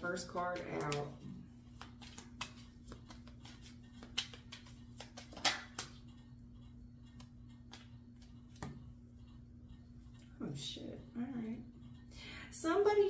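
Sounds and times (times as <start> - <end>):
faint low hum: 0.0 - 13.0
cards clicking and snapping: 1.8 - 6.0.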